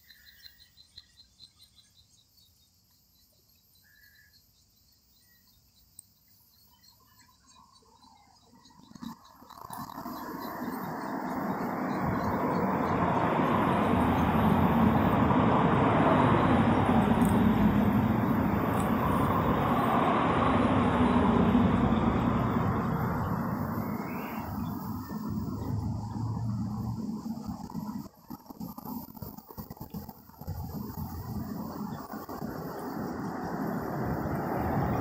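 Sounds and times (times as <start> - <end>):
road vehicle passing: 9.0 - 28.1, 30.4 - 35.0.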